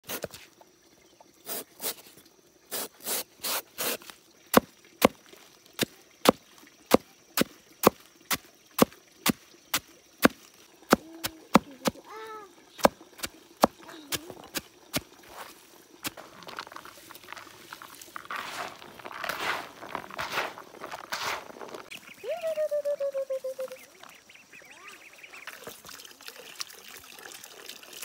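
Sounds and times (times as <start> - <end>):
blade chopping on wood: 3.8 - 5.2, 5.8 - 12.0.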